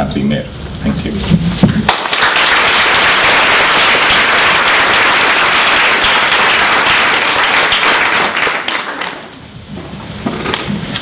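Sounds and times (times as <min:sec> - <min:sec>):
audience applause: 0:01.9 - 0:09.4.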